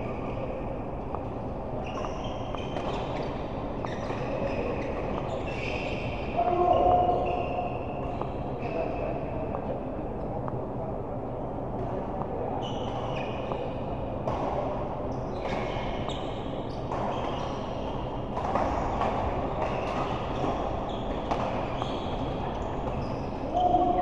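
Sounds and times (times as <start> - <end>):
hubbub of large hall: 0.0 - 24.0
sports shoes squeaking: 1.8 - 9.0, 12.6 - 13.7, 19.5 - 24.0.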